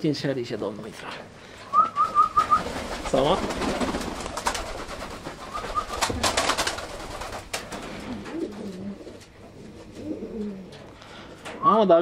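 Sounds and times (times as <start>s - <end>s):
pigeons cooing: 1.8s - 10.9s.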